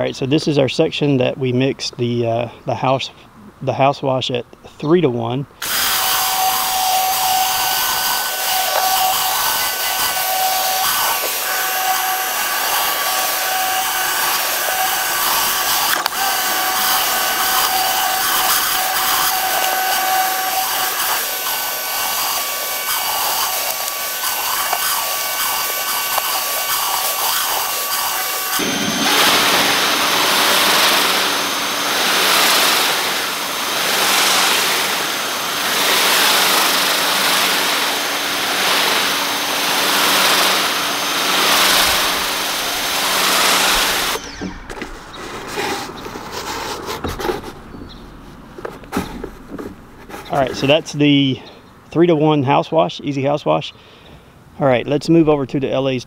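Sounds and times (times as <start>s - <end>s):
pressure washer spray rushing: 5.6s - 44.3s
whining motor: 5.6s - 46.3s.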